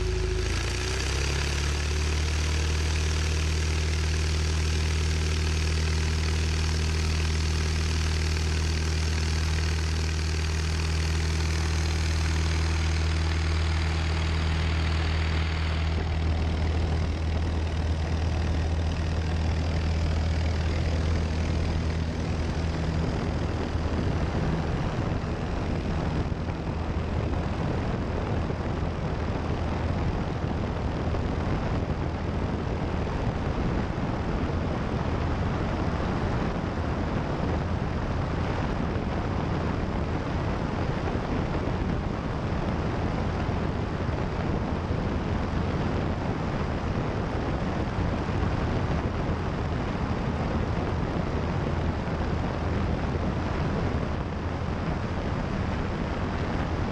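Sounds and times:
propeller airplane engine drone: 0.0s - 56.9s.

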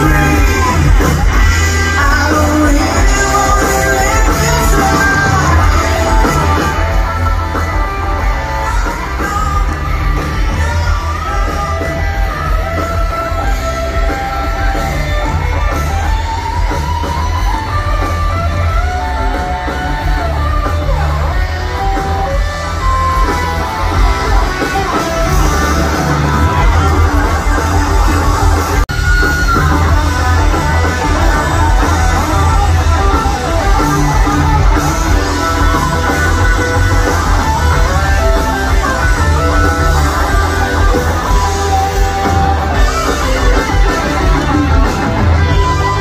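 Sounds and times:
person singing: 0.0s - 15.7s
live rock band playing: 0.0s - 46.0s.

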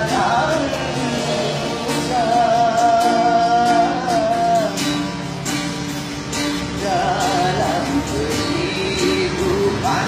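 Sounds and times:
person singing: 0.0s - 5.2s, 6.4s - 10.0s
acoustic guitar strumming: 0.0s - 10.0s.

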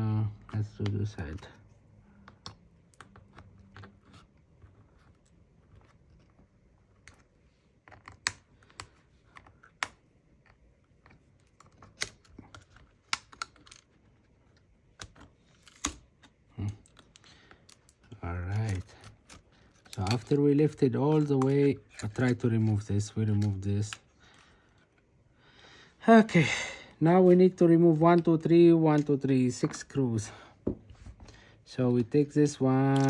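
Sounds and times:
plastic tool clicking and scraping: 0.4s - 25.1s.

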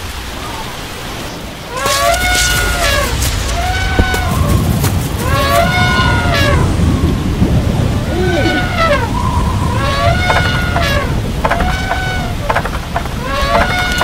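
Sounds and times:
heavy rain: 0.0s - 14.0s
rising and falling call: 1.7s - 12.5s
low rumbling thunder: 1.7s - 14.0s.

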